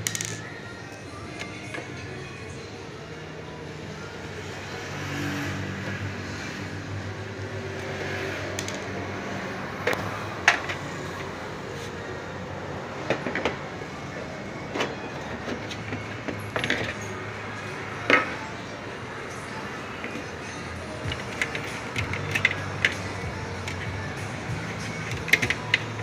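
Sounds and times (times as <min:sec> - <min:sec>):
metal clicks and knocks: 0:21.1 - 0:23.0, 0:25.0 - 0:25.9.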